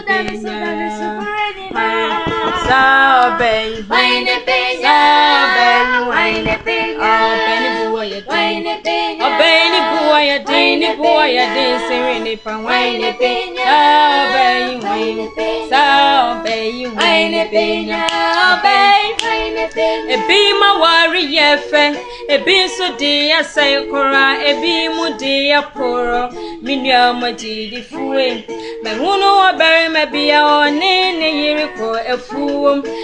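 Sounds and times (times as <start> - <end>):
women singing together: 0.0 - 33.0.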